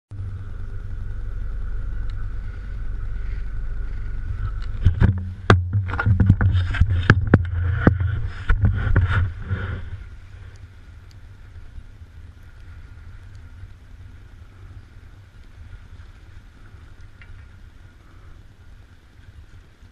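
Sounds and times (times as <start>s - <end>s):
low rumble: 0.1s - 19.9s
sharp knocks and heavy thumps: 4.8s - 9.5s.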